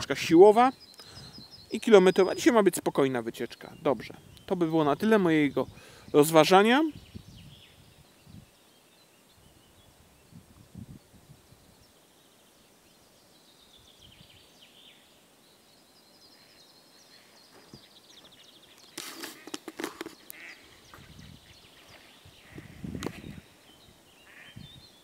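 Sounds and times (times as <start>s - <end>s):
songbirds singing and trilling: 0.0s - 25.0s
rustling noise: 17.5s - 23.5s.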